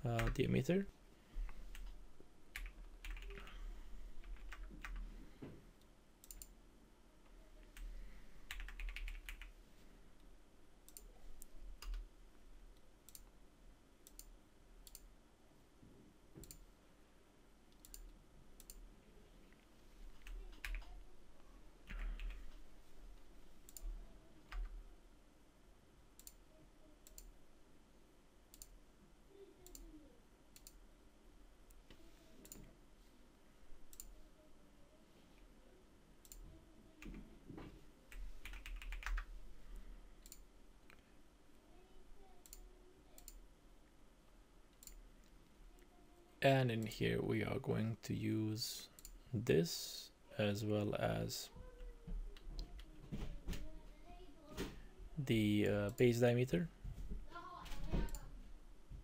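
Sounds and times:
keyboard typing: 0.1 - 0.5, 1.7 - 3.6, 4.2 - 5.0, 8.5 - 9.5, 11.8 - 12.0, 20.1 - 21.0, 21.8 - 22.6, 38.1 - 39.3
computer mouse clicks: 6.2 - 6.6, 10.9 - 12.0, 13.1 - 13.3, 14.0 - 15.1, 16.4 - 16.7, 17.7 - 18.8, 23.6 - 24.7, 26.2 - 26.4, 27.0 - 27.3, 28.5 - 28.8, 29.6 - 29.9, 30.5 - 30.8, 33.9 - 34.2, 36.2 - 37.2, 40.2 - 41.0, 42.4 - 43.4, 44.7 - 45.3.

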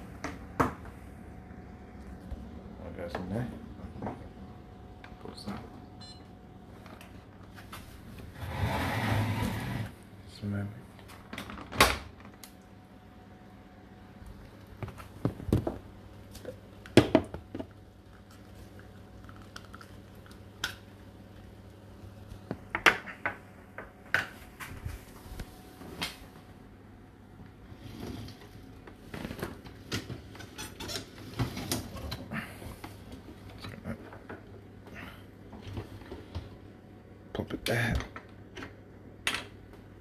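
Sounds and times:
steady low hum: 0.0 - 11.5.

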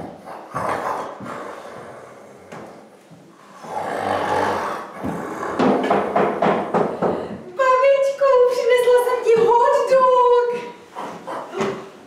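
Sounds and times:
person snoring: 3.5 - 5.6.

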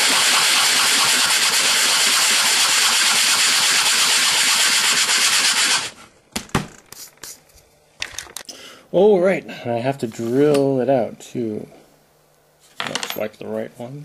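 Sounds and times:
sanding hiss on plastic: 0.0 - 6.0, 6.9 - 7.5.

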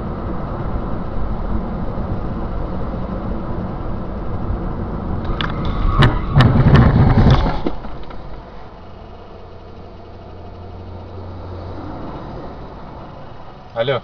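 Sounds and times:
car engine and road noise: 0.0 - 14.0
car crash crunching: 5.2 - 9.2.

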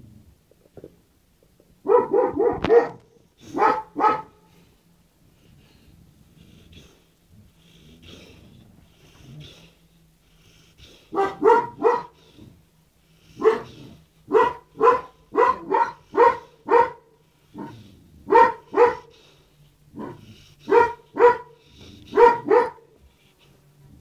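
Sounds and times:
dog barking: 1.8 - 4.5, 11.1 - 12.2, 13.4 - 19.1, 20.0 - 23.0.

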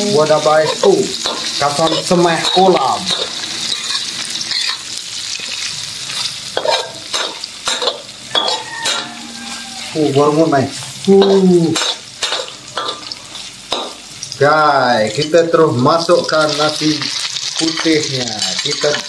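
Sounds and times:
food sizzling in hot oil: 0.0 - 19.0
metal spatula scraping wok: 0.4 - 13.8.

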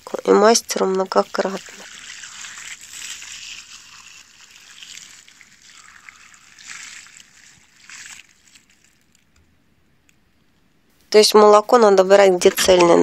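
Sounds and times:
milk splashing on tree bark: 0.5 - 9.4.

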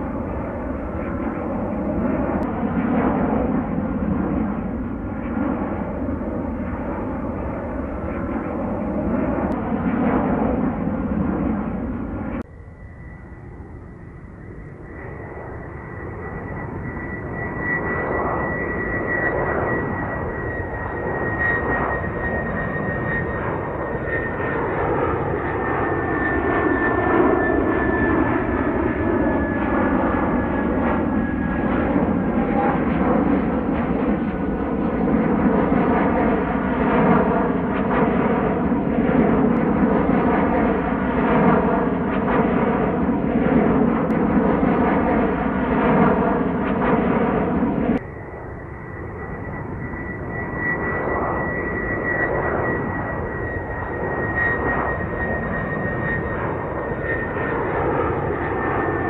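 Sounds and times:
jet engines rumbling overhead: 0.0 - 59.0
high engine whine falling in pitch: 11.8 - 34.3, 45.8 - 59.0.

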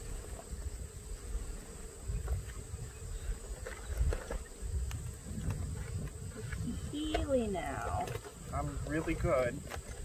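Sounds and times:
bees humming: 0.0 - 10.0.

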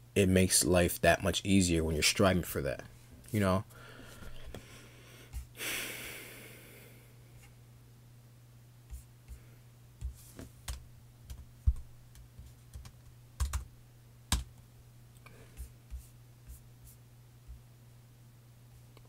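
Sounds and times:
low electrical hum: 0.0 - 19.0
laptop keyboard typing: 10.6 - 13.7, 14.3 - 14.6.

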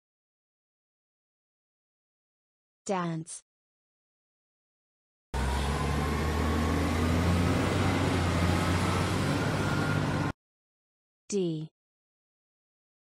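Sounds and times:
truck engine humming: 5.4 - 10.3.

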